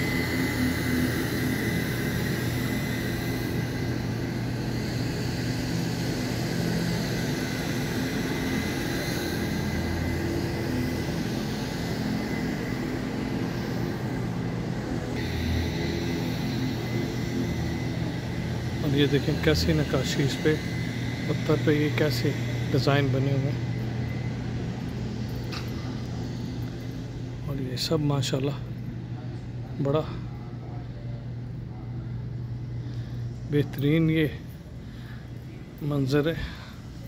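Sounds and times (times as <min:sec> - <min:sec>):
vacuum cleaner running on carpet: 0:00.0 - 0:28.4.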